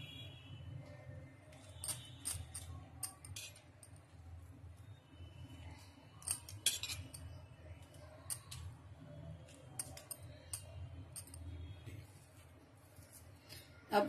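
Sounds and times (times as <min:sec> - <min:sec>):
metal spoon clinking on bowl: 0:01.6 - 0:04.0, 0:06.2 - 0:07.4, 0:09.5 - 0:11.5.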